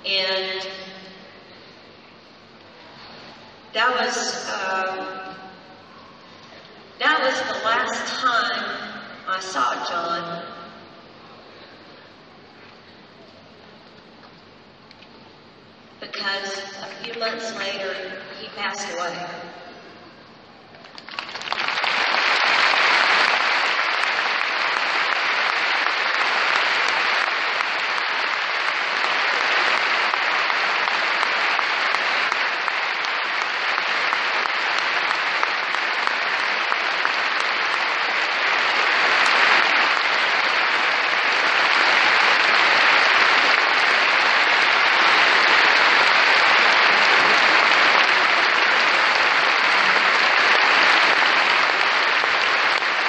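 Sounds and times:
large audience applauding: 20.8 - 53.0.

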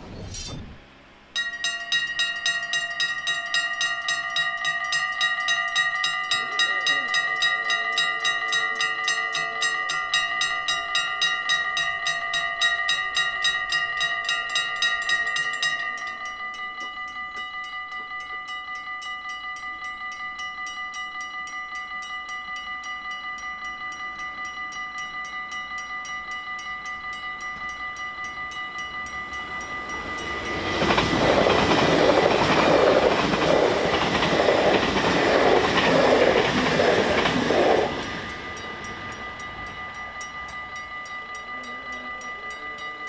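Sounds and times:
level crossing bells ringing: 1.3 - 43.0.

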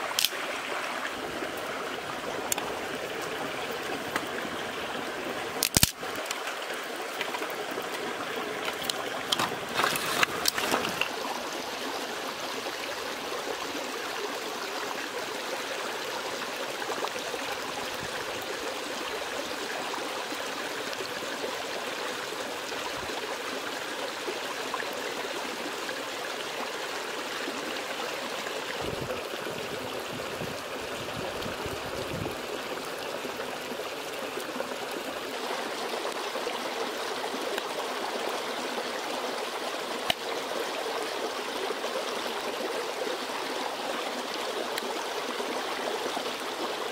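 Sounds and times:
stream water flowing: 0.0 - 46.9
sharp clicks: 5.6 - 6.4.

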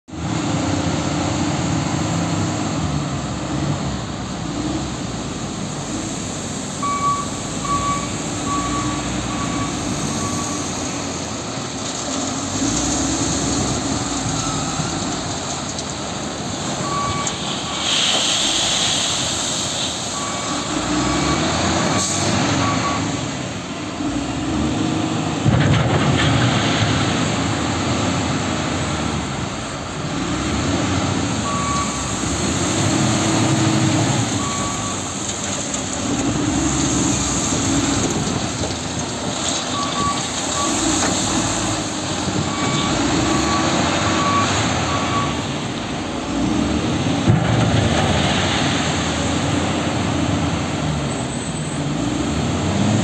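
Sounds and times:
wheel loader diesel engine revving: 0.1 - 53.0
reversing alarm beeps: 6.8 - 10.9, 14.2 - 15.0, 16.8 - 17.8, 20.2 - 23.2, 31.4 - 32.3, 34.3 - 35.1, 39.7 - 41.6, 42.4 - 45.5.

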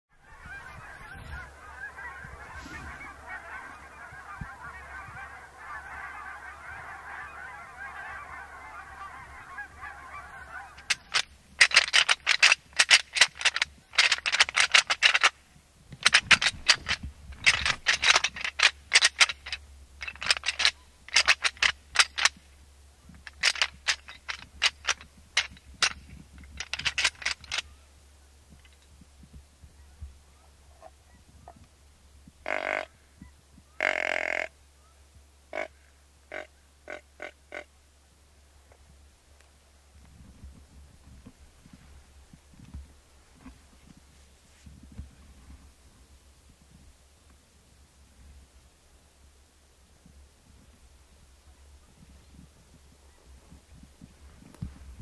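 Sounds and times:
geese honking: 0.1 - 15.3, 16.0 - 22.4, 23.2 - 26.0, 32.4 - 37.7.

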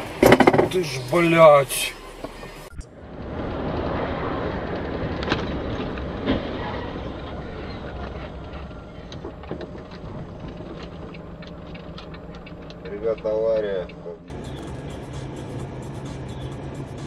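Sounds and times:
road noise on wet highway: 0.0 - 17.0
sharp knocks: 0.2 - 0.8.

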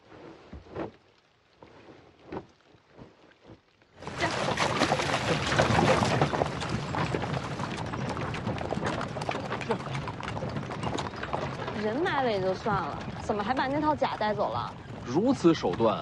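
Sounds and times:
hooves splashing through mud: 0.0 - 16.0
carriage rolling: 5.2 - 15.0.

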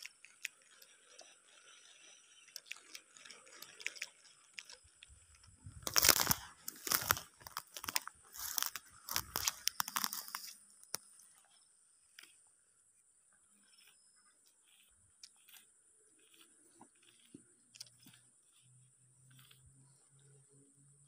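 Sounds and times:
footsteps crunching dry grass: 5.5 - 10.7.

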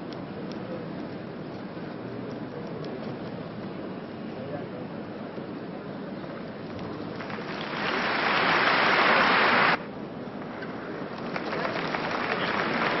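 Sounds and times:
large crowd applauding: 7.1 - 9.8, 11.1 - 13.0.

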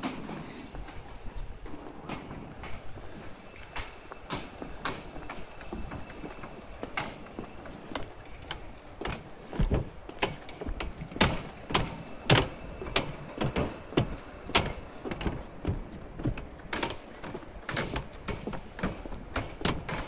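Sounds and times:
faint city hum: 0.0 - 20.0
footsteps on a footbridge: 0.0 - 20.0.

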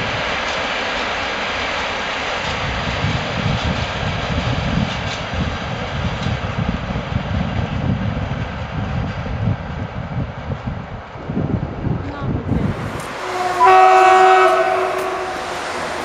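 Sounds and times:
low rumbling: 12.4 - 16.0
freight train wagons rolling: 12.5 - 16.0.

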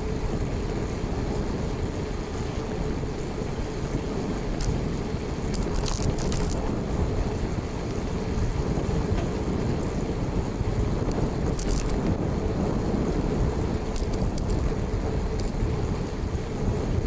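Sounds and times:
wind and road noise: 0.0 - 17.0
rattling clicks: 5.5 - 6.6, 11.1 - 12.1, 13.9 - 14.7.

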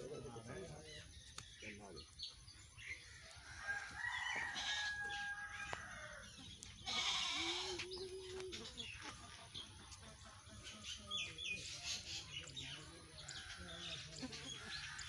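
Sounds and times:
birds chirping faintly: 0.0 - 15.0
goat bleating: 6.8 - 8.4.

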